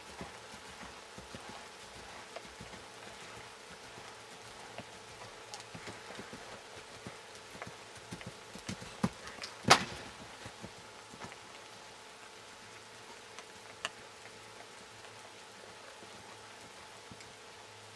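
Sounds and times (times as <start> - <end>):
horse hooves in sand: 0.0 - 17.9.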